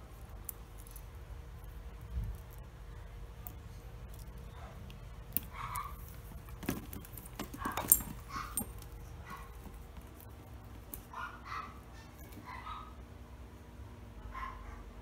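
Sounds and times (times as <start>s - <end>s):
metal clasp clicking: 6.6s - 8.8s.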